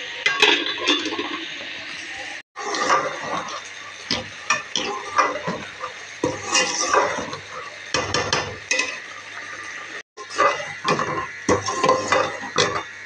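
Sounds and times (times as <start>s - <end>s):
food sizzling in pot: 0.0s - 13.0s
metal spoon scraping metal pot: 4.5s - 9.1s, 10.2s - 12.9s.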